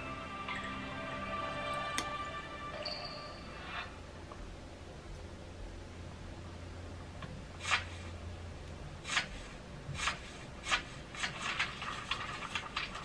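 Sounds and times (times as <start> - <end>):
paper pages turning: 10.0 - 13.0.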